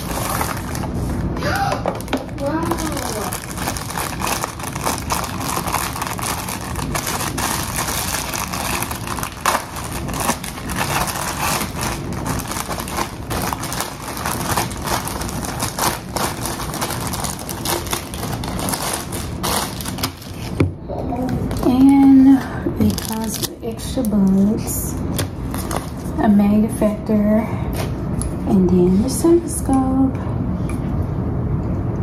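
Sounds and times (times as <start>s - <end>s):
plastic packaging crinkling: 0.0s - 20.6s, 21.2s - 26.2s
plastic packaging tearing: 0.0s - 20.6s, 22.8s - 24.4s, 25.1s - 26.2s.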